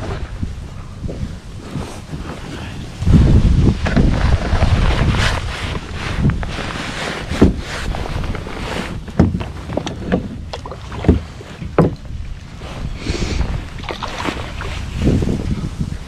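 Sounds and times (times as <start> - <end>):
wind noise on microphone: 0.0 - 16.0
knocks against plastic kayak: 9.1 - 12.1.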